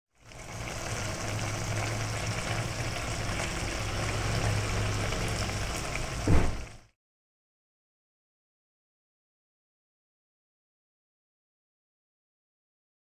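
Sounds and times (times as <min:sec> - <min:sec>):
sauce bubbling and crackling: 0:00.1 - 0:06.9
short thump: 0:06.2 - 0:06.6.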